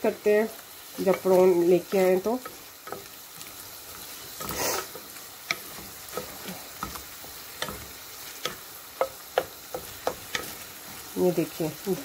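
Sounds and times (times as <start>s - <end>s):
prawns sizzling in pot: 0.0s - 12.0s
spatula scraping metal pot: 3.9s - 10.7s.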